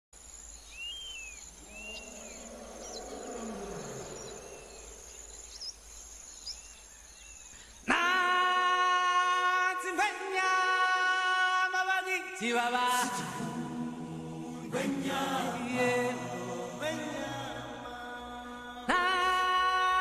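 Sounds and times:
insects buzzing and trilling: 0.2 - 8.0
bird-like chirps: 0.4 - 7.9.

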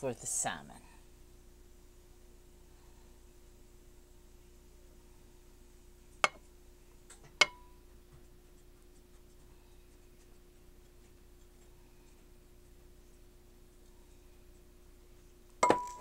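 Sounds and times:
faint steady hum: 0.0 - 16.0
kitchenware clinking against glass: 15.6 - 16.0.

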